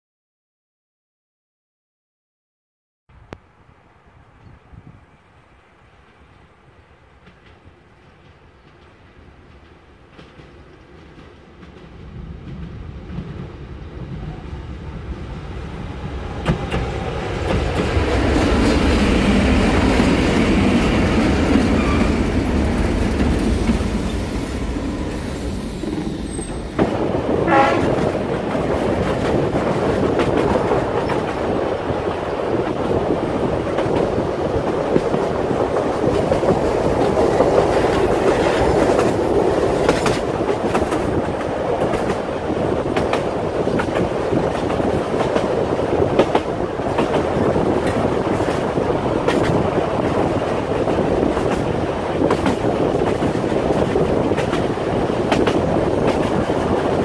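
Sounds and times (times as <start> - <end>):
diesel locomotive running by: 5.4 - 57.0
train wheels clattering on rails: 7.2 - 14.2, 16.2 - 57.0
train horn blast: 27.4 - 28.2.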